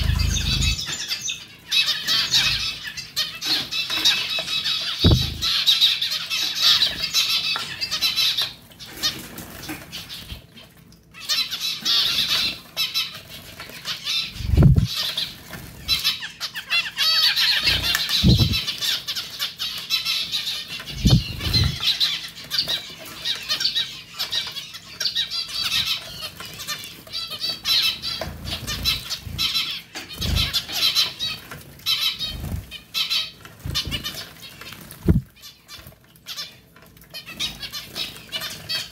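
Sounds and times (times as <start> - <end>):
dull low thumps: 0.0 - 0.8, 5.1 - 5.5, 14.4 - 14.9, 18.2 - 18.6, 21.0 - 21.8, 35.1 - 35.3
wings fluttering: 0.0 - 1.1, 5.0 - 5.6, 14.3 - 16.0, 17.4 - 19.0, 20.8 - 22.2, 28.0 - 35.9
finches calling: 0.0 - 6.0, 14.1 - 15.2, 17.3 - 19.0, 20.8 - 22.8, 27.6 - 31.2, 34.9 - 35.3.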